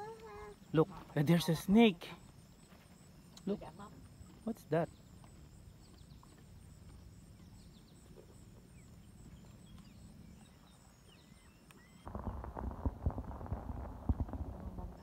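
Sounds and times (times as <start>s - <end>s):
faint bird chirps: 7.3s - 12.4s.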